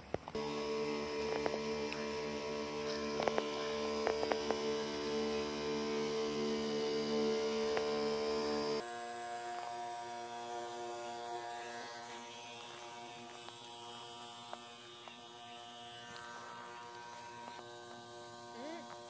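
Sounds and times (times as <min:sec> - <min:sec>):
sprayer pump motor humming: 0:00.0 - 0:11.7.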